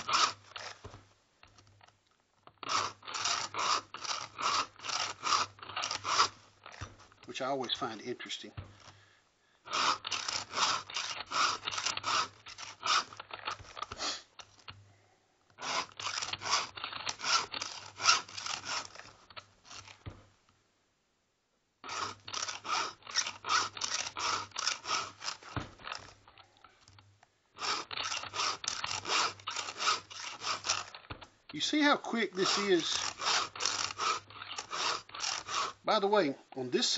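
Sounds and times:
file rasping on chainsaw chain: 0:00.0 - 0:00.9, 0:02.6 - 0:08.1, 0:09.7 - 0:14.7, 0:15.6 - 0:20.0, 0:21.8 - 0:26.4, 0:27.6 - 0:36.1.

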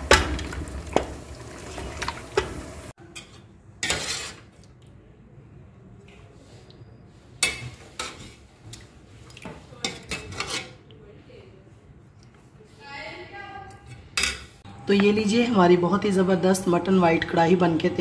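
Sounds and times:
wooden spatula scraping metal pot: 0:00.0 - 0:04.6, 0:09.9 - 0:10.8.

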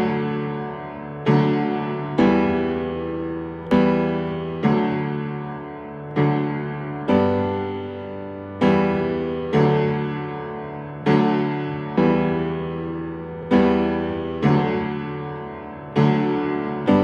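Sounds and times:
slow piano chords: 0:00.0 - 0:17.0.

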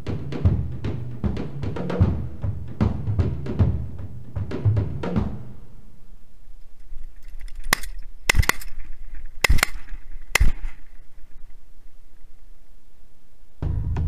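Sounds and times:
shotgun shots: 0:07.6 - 0:11.6.

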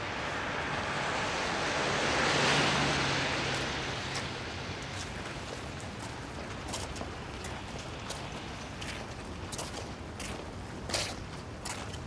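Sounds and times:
car tyres hissing on wet road: 0:00.0 - 0:05.8
steady rain: 0:00.0 - 0:12.0.

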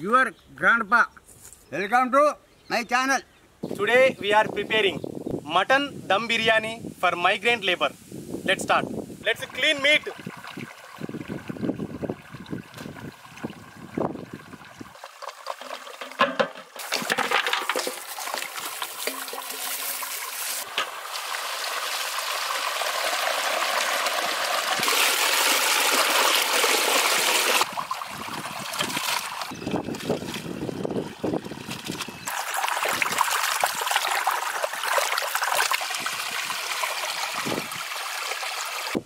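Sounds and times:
water gushing from hose: 0:09.3 - 0:39.0
water splashing over meat: 0:16.8 - 0:30.6, 0:31.5 - 0:39.0.

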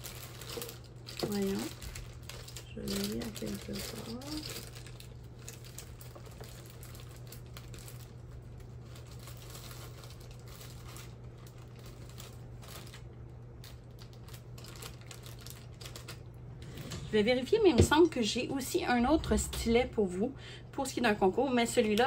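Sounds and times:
plastic packaging crinkling: 0:00.0 - 0:17.0
steady low hum: 0:00.0 - 0:22.0.

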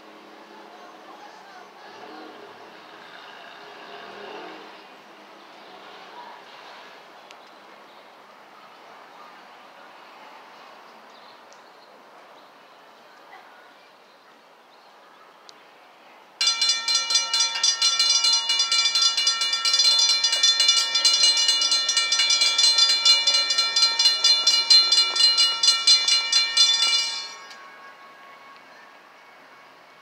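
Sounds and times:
crossing warning bell ringing: 0:16.4 - 0:28.7.

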